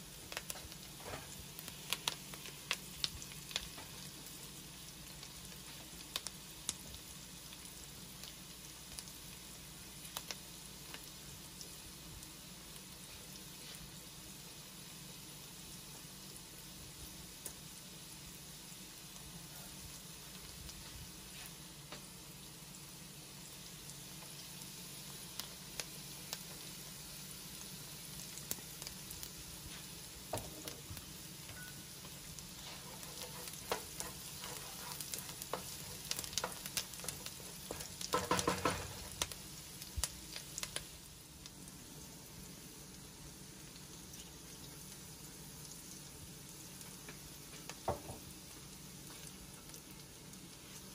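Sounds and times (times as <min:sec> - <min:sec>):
food sizzling in a pan: 0:00.0 - 0:50.9
wooden spoon scraping a pan: 0:32.5 - 0:39.2.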